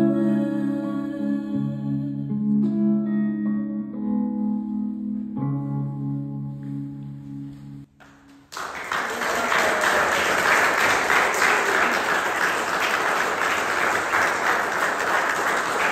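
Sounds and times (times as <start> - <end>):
electric guitar chord ringing: 2.4 - 7.8
audience applause: 8.0 - 15.9.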